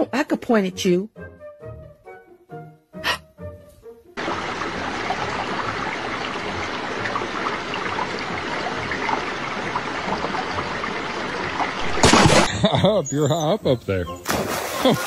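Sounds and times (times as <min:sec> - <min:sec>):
river water rushing: 0:04.2 - 0:12.5.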